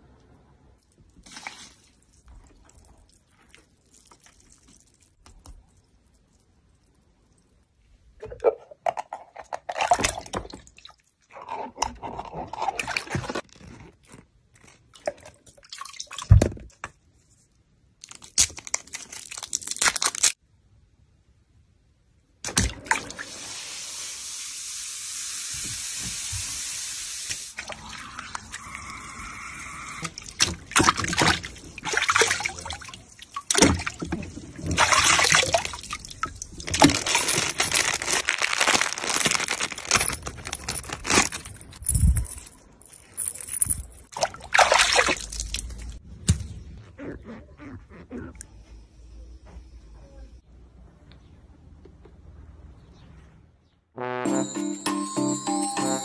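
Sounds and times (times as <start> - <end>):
water sloshing and splashing: 30.0 - 39.7, 44.1 - 46.0.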